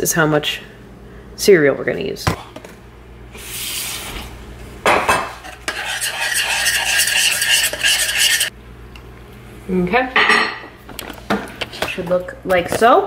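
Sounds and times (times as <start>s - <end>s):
whisk clinking against pot: 5.1s - 8.5s.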